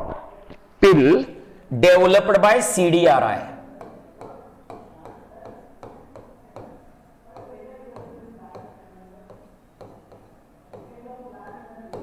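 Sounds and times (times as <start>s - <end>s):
stylus tapping on glass: 3.7s - 12.0s.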